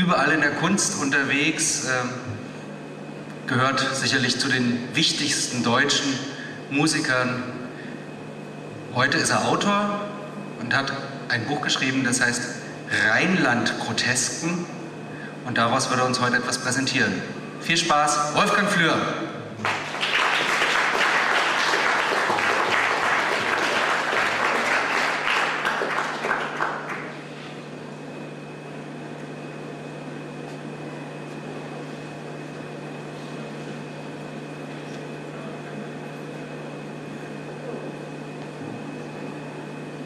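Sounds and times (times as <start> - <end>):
audience applauding: 19.6 - 27.2.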